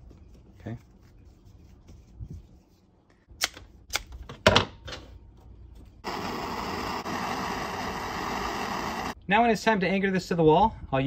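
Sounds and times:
handheld torch hissing: 0:06.0 - 0:09.2.

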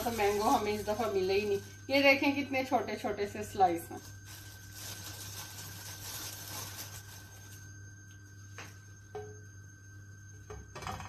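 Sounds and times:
plastic bag rustling: 0:00.0 - 0:07.7.

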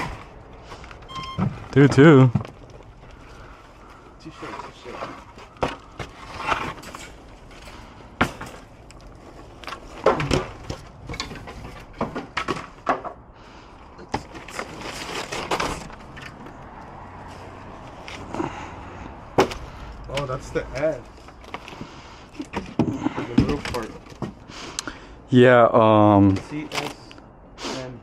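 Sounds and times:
rustling scrape: 0:03.0 - 0:08.0, 0:14.3 - 0:16.5
scrap wood knocking and clattering: 0:04.4 - 0:08.7, 0:09.3 - 0:13.2.

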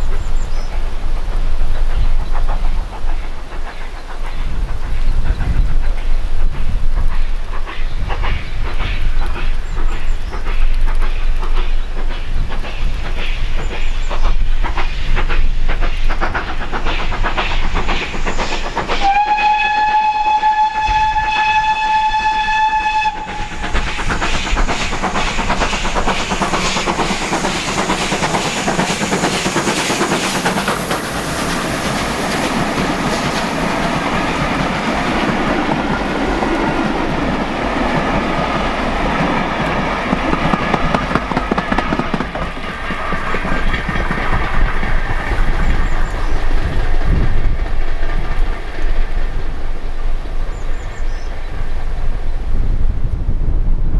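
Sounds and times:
steam locomotive exhaust beat: 0:00.0 - 0:53.9
train running on rails: 0:00.0 - 0:53.9
steam whistle: 0:19.0 - 0:23.7.

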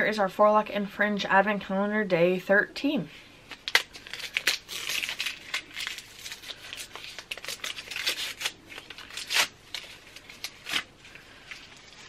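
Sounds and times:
gift wrapping torn and crinkled: 0:03.5 - 0:12.0.

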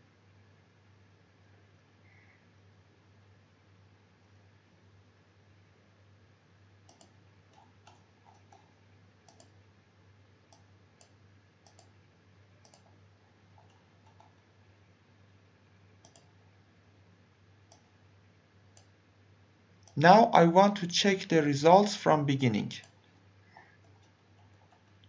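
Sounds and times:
low steady hum: 0:00.0 - 0:25.0
computer mouse clicks: 0:06.9 - 0:09.6, 0:10.5 - 0:12.0, 0:12.6 - 0:13.0, 0:13.6 - 0:14.4, 0:16.0 - 0:16.4, 0:17.7 - 0:17.9, 0:18.7 - 0:19.0, 0:23.8 - 0:25.0.

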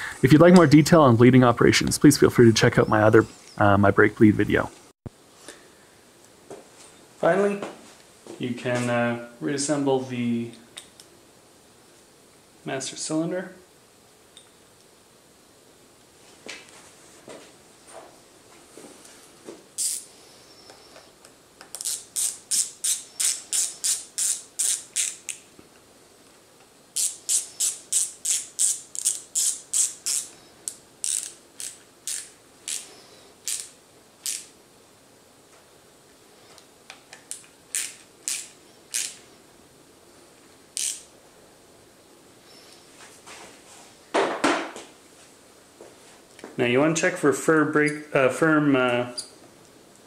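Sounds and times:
ratcheting screwdriver clicking: 0:27.0 - 0:32.8, 0:40.8 - 0:41.0.

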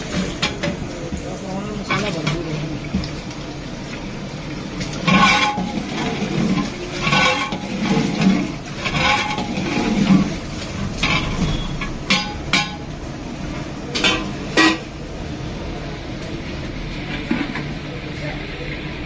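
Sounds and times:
metal ladle knocking on pot: 0:11.0 - 0:12.9.

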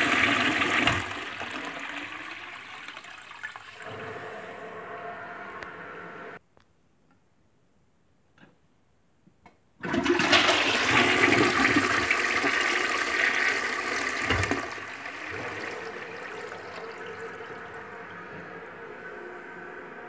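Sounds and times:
toilet drain gulp: 0:00.0 - 0:04.2, 0:09.8 - 0:19.2
toilet flushing: 0:00.0 - 0:06.4, 0:09.8 - 0:20.0.

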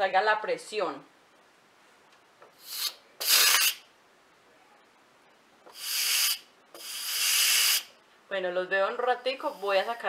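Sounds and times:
steam valve hissing: 0:02.6 - 0:03.8, 0:05.7 - 0:07.9.

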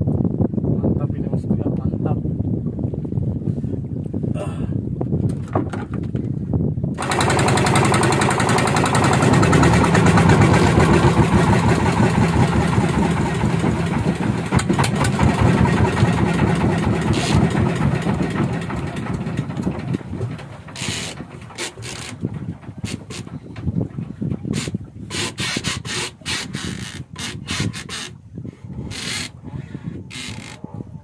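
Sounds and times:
boat engine running: 0:06.9 - 0:28.2.

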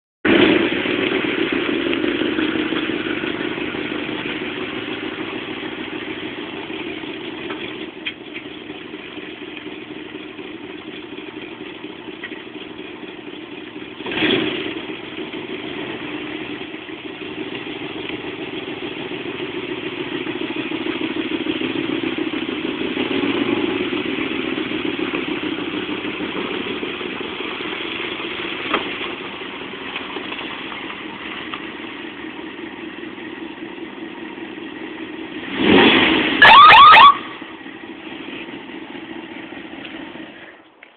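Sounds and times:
car engine running: 0:00.2 - 0:40.9
thump: 0:28.7 - 0:29.0.

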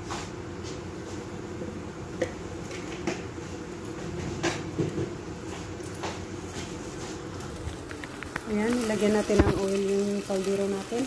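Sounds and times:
steady background hum: 0:00.0 - 0:11.0
kitchen things knocking and rustling: 0:04.0 - 0:05.2, 0:07.9 - 0:09.8.

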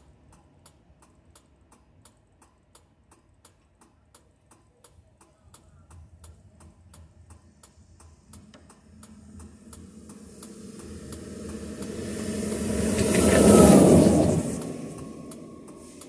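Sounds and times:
hazard flasher relay clicking: 0:00.0 - 0:13.4
low rumble: 0:06.5 - 0:16.0.

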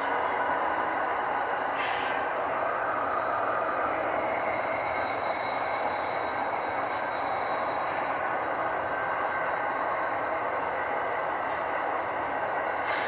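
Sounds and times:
faint high whine: 0:00.0 - 0:13.0
model train wheels rumbling: 0:00.0 - 0:13.0
brief hiss: 0:01.8 - 0:02.2.

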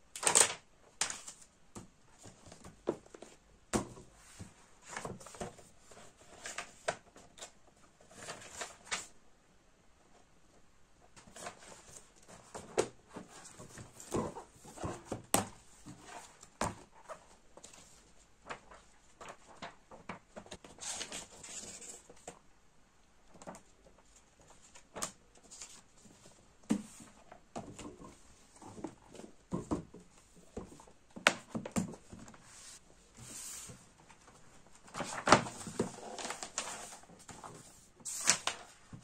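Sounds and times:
pages flipping and rustling: 0:00.2 - 0:01.5, 0:04.2 - 0:09.1, 0:11.2 - 0:22.4, 0:30.6 - 0:39.0
books set down and stacked: 0:01.1 - 0:05.7, 0:11.2 - 0:17.8, 0:26.1 - 0:37.7.

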